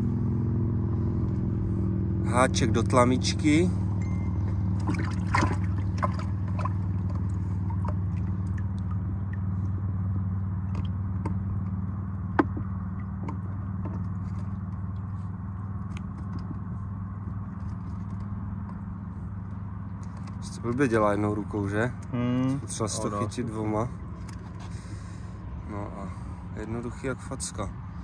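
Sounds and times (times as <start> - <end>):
boat motor humming: 0.0 - 28.0
fishing tackle clicks and scrapes: 24.2 - 24.8.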